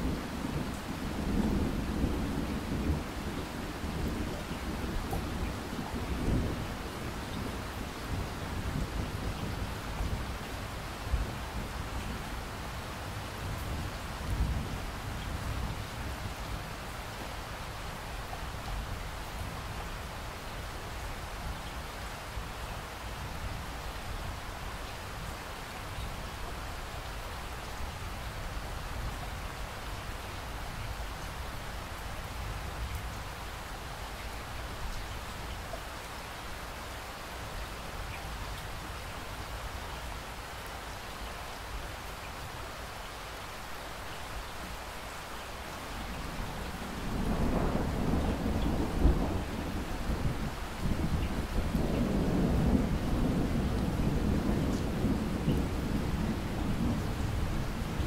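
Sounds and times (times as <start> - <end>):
steady rain falling: 0.0 - 58.0
thunder rumbling: 46.2 - 58.0.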